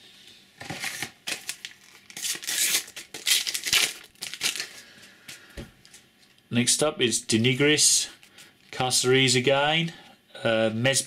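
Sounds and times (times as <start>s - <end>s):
wrapper ripping and crinkling: 0.6s - 5.0s.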